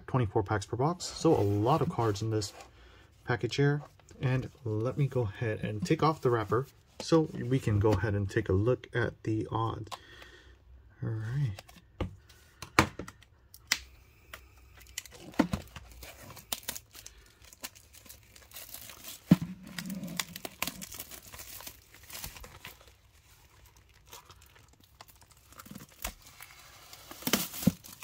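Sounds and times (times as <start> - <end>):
plastic wrap crinkling and tearing: 14.8 - 28.0.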